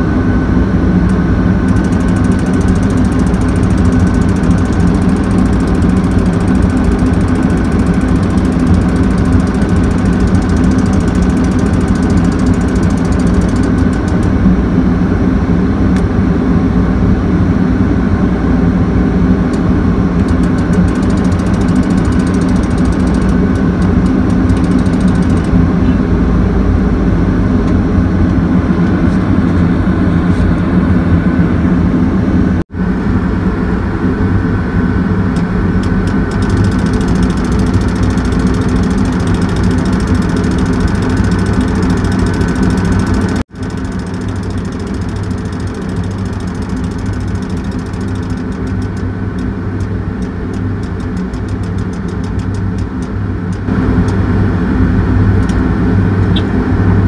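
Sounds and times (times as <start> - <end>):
heavy machinery engine running: 0.0 - 16.8, 17.7 - 32.6, 35.1 - 57.0.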